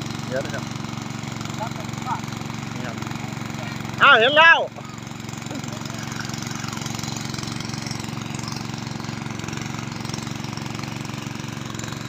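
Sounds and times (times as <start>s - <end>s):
small engine chugging: 0.0s - 12.0s.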